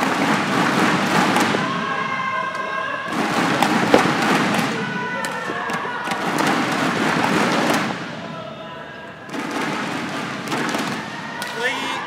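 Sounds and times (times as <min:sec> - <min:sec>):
racket hitting shuttlecock: 0:00.0 - 0:01.8, 0:02.5 - 0:08.0
crowd noise: 0:00.0 - 0:12.0.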